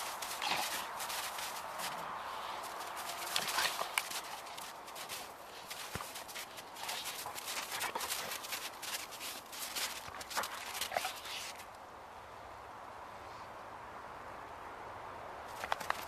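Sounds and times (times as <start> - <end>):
paw steps crunching in snow: 0.0 - 11.7
faint outdoor hiss: 0.0 - 16.0.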